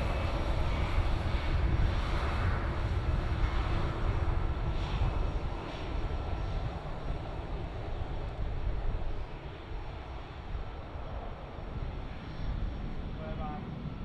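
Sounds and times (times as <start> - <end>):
jet engines rumbling: 0.0 - 14.0.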